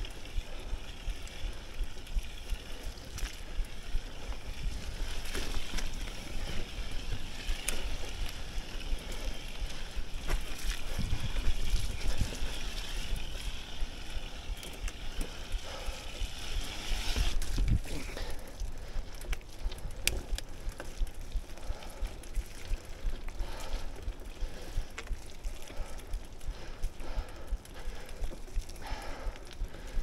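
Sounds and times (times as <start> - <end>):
bike rattling and clicking: 0.0 - 30.0
wind rumble on microphone: 3.9 - 13.6, 16.8 - 18.1.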